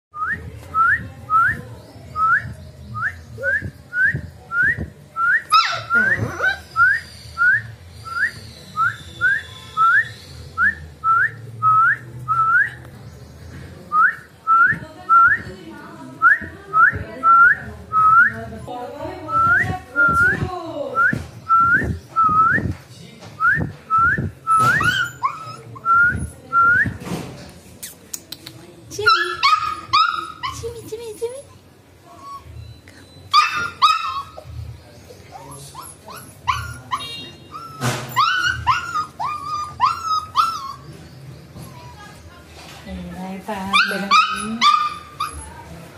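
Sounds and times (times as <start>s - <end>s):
puppy whining: 5.4s - 10.3s, 24.5s - 26.4s, 28.9s - 42.3s, 43.7s - 45.9s.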